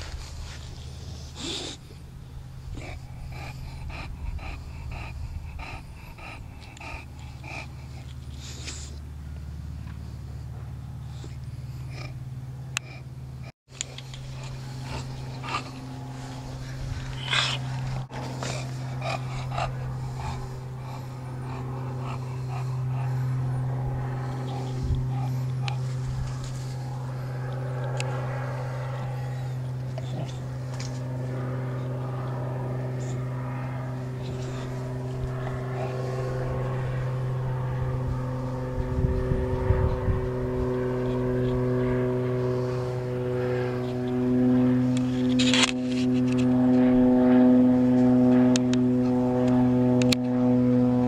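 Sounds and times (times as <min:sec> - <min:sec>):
dog panting: 0:00.0 - 0:09.0, 0:11.0 - 0:37.6
low mechanical motor hum: 0:00.0 - 0:51.0.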